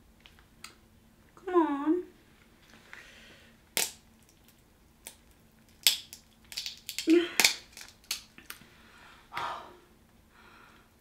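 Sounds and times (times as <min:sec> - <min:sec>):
crab shell cracking: 0:03.7 - 0:08.6.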